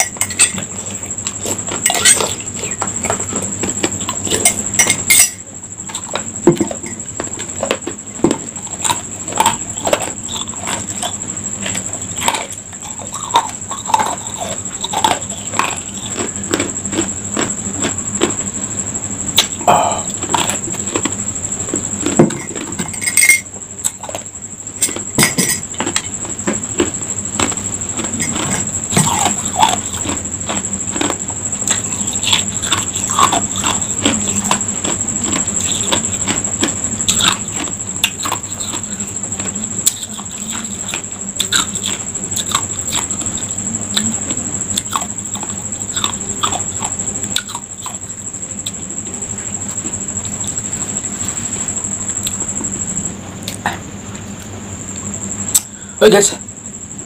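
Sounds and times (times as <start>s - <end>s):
high-pitched whine: 0.0s - 57.0s
ice cubes crunched and chewed: 25.8s - 44.2s.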